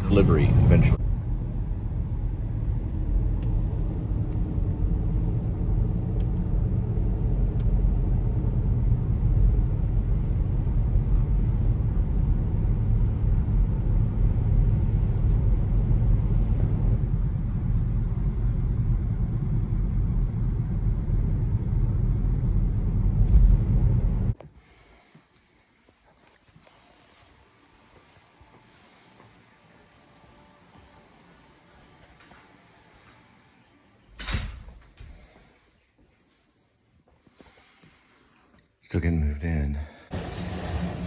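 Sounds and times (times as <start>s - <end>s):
car road and engine rumble: 0.0s - 24.4s.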